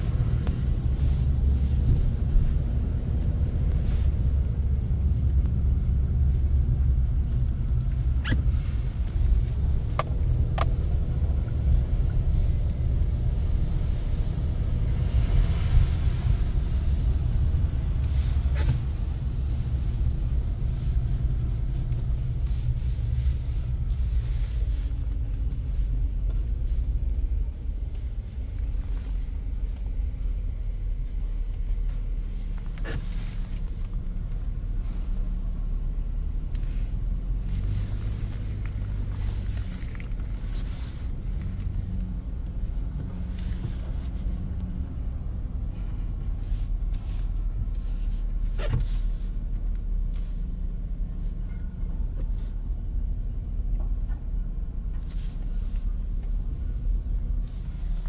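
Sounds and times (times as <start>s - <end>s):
vehicle cabin road rumble: 0.0s - 58.0s.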